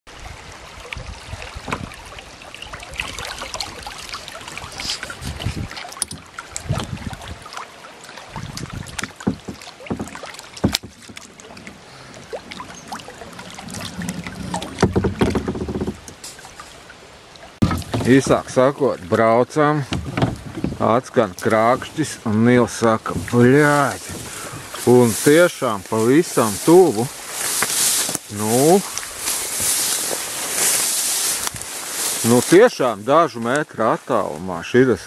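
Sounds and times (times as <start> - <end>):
paddle strokes splashing: 0.1 - 35.0
river current rippling: 0.1 - 35.0
sharp knocks: 9.0 - 11.3, 14.1 - 16.1, 17.6 - 18.3.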